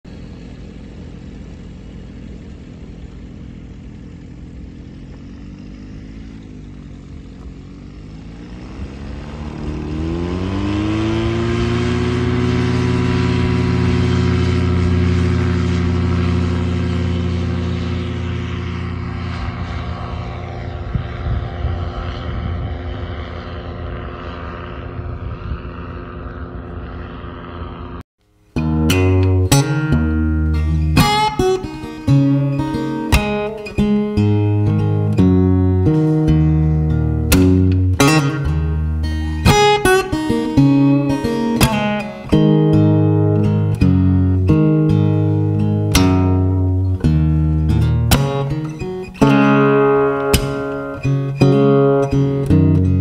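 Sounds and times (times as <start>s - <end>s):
ultralight engine and propeller: 0.1s - 53.0s.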